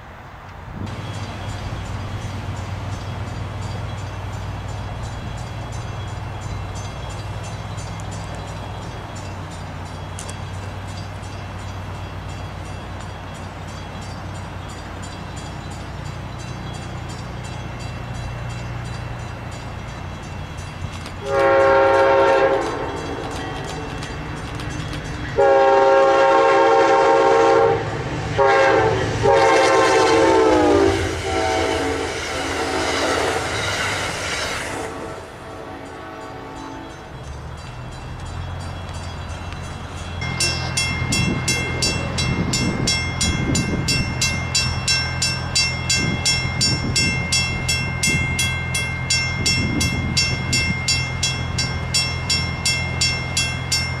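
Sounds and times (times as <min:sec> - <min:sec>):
low train rumble: 0:00.0 - 0:54.0
train horn blasts: 0:21.2 - 0:23.6, 0:25.3 - 0:33.7, 0:34.6 - 0:37.1.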